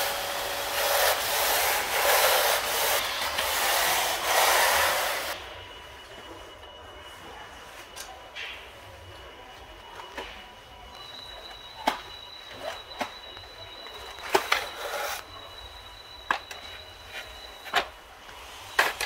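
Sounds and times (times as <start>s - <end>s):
vacuum cleaner high whine: 0.0s - 8.3s.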